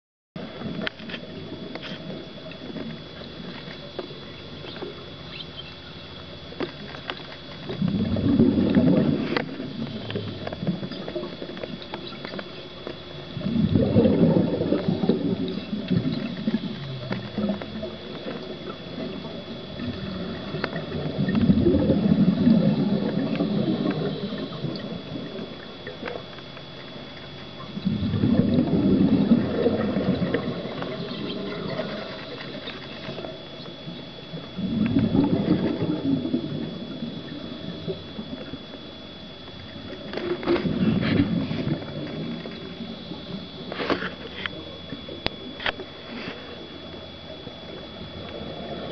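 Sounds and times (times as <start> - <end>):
divers exhaling bubbles: 7.7 - 11.5, 13.2 - 26.0, 27.6 - 39.2, 39.8 - 45.5.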